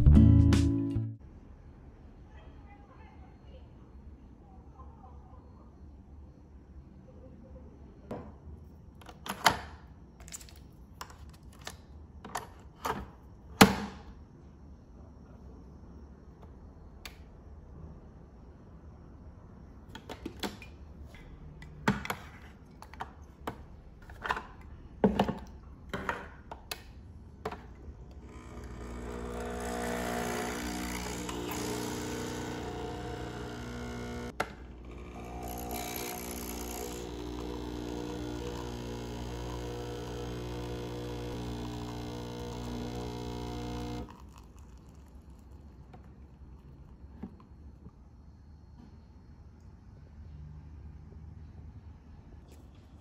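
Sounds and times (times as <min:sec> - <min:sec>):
coffee machine pump buzzing: 0:28.2 - 0:46.9.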